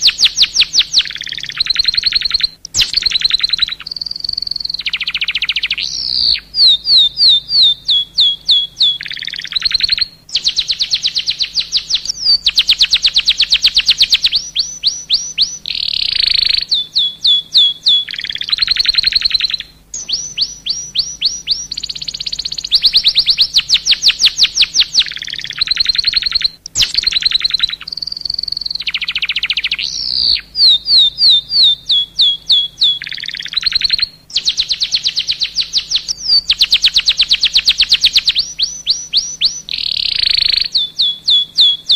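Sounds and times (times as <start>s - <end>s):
canary singing: 0.0s - 41.9s.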